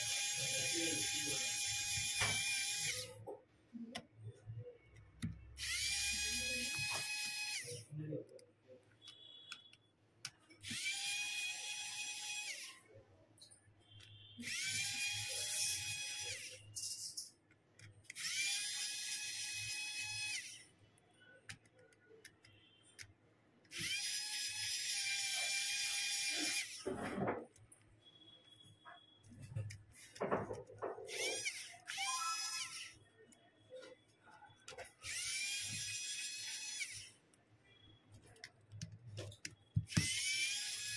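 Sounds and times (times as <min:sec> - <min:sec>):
electric screwdriver whirring: 0:00.0 - 0:03.2, 0:05.6 - 0:07.8, 0:10.6 - 0:12.7, 0:14.4 - 0:16.6, 0:18.1 - 0:20.6, 0:23.7 - 0:26.9, 0:31.1 - 0:33.0, 0:34.9 - 0:37.1, 0:39.3 - 0:40.9.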